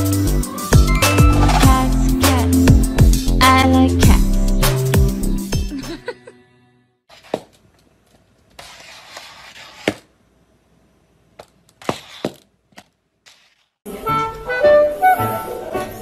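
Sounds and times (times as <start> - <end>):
plastic cone collar scraping tile: 8.5 - 10.1, 11.8 - 12.4, 13.2 - 13.8.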